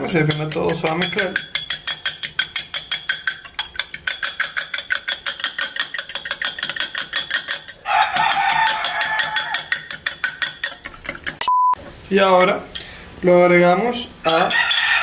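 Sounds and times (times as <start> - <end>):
fork beating eggs in bowl: 0.0 - 11.4, 14.2 - 15.0
rooster crowing: 7.8 - 9.8, 14.5 - 15.0.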